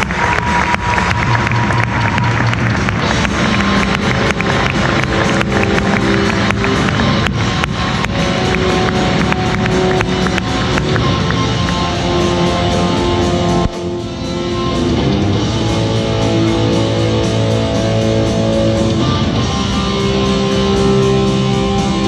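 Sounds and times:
heavy rock music with electric guitar: 2.0s - 22.0s.

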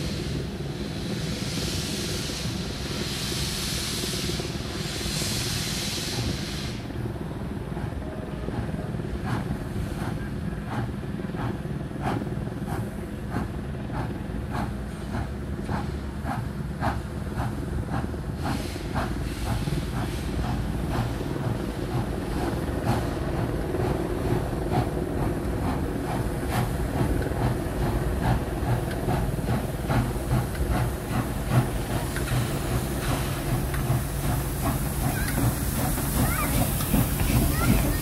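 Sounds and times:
steam hissing: 0.0s - 7.0s, 9.2s - 38.0s
steam locomotive chuffing: 0.0s - 38.0s
train running rumble: 0.0s - 38.0s.

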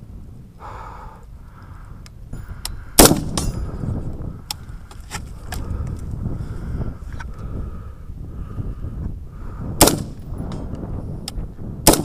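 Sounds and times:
loud rifle shot: 3.0s - 3.5s, 9.8s - 10.2s.

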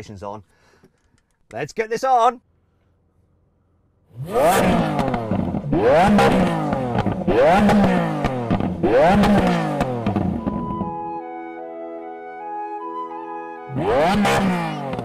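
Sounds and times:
car engine revving: 4.1s - 11.1s, 13.7s - 15.0s.

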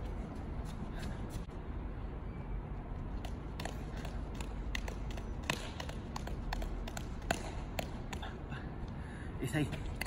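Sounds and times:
juggling balls slapping into hands: 3.2s - 8.5s.

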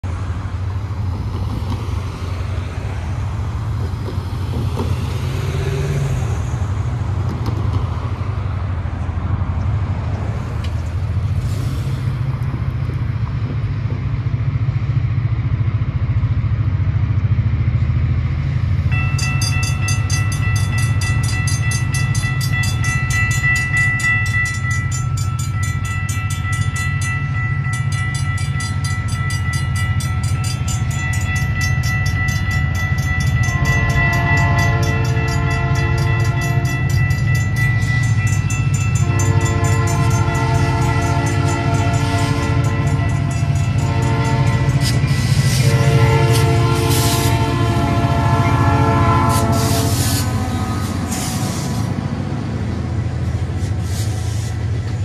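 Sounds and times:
railroad crossing warning bell: 2.0s - 6.8s, 17.7s - 55.0s.

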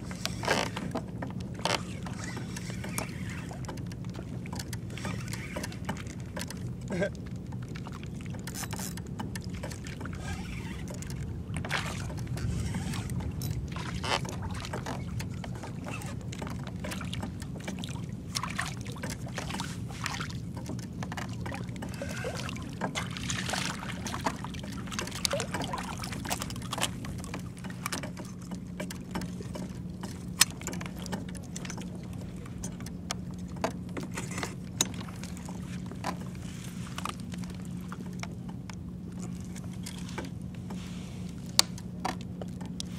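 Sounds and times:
water sloshing and splashing: 0.0s - 42.9s
fishing rod and reel clicks: 0.1s - 6.6s, 8.4s - 9.4s.

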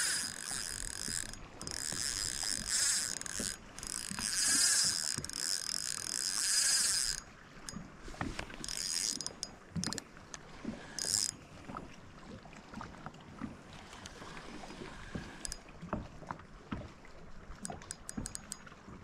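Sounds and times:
fishing reel drag buzzing: 0.0s - 11.4s, 15.0s - 15.7s, 17.6s - 18.6s.

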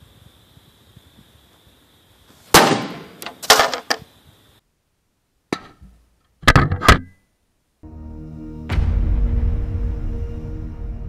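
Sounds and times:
baseballs banging into sheet metal: 5.5s - 7.0s.

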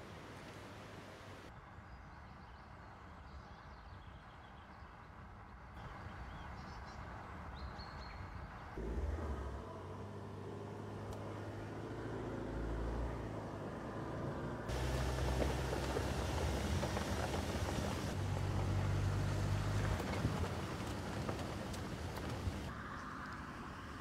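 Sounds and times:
car engine and tyres on dirt: 5.8s - 24.0s
birds chirping: 14.7s - 18.2s.

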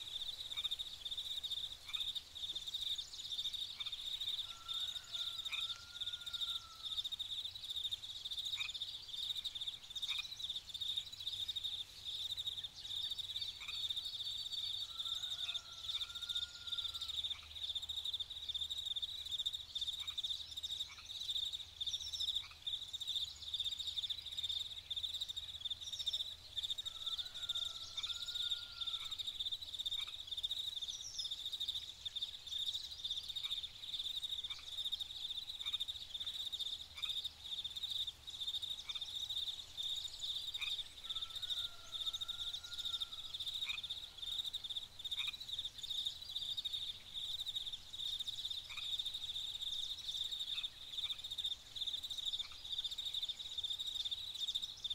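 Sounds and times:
faint bird chirps: 0.0s - 54.9s
insects trilling: 0.0s - 54.9s.

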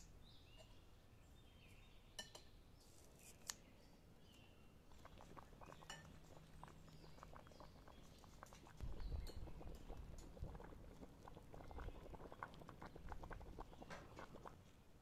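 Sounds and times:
soup bubbling in a pot: 4.8s - 15.0s
bubbles popping: 4.9s - 14.6s.

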